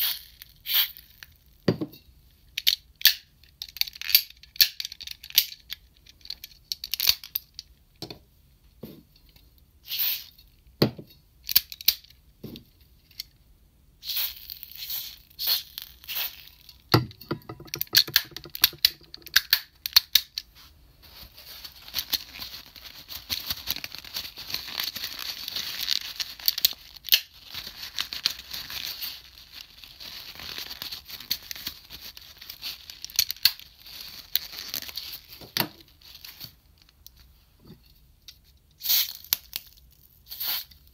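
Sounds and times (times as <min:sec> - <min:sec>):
plastic toy parts clicking: 0:02.5 - 0:07.7, 0:11.5 - 0:12.2, 0:16.7 - 0:20.5.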